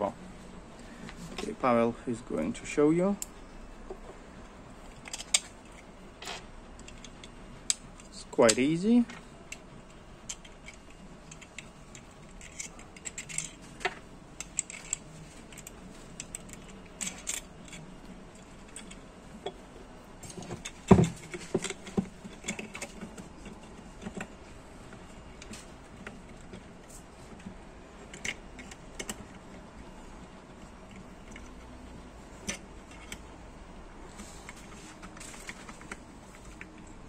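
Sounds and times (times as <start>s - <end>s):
metallic clicks and rattles of screws: 4.9s - 5.9s, 6.8s - 19.6s, 20.2s - 24.4s, 25.4s - 29.6s, 30.5s - 31.8s, 32.4s - 33.4s.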